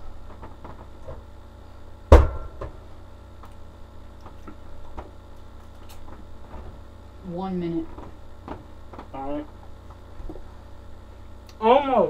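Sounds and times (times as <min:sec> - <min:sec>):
low steady hum: 0:00.0 - 0:12.0
sharp knock: 0:02.1 - 0:02.7.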